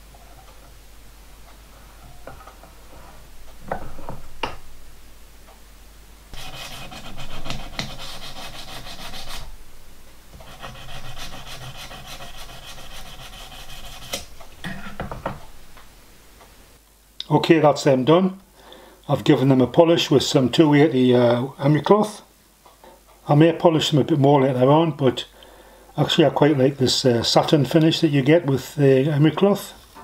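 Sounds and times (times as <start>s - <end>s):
emery cloth rubbing on metal: 6.3s - 9.6s, 10.4s - 15.0s.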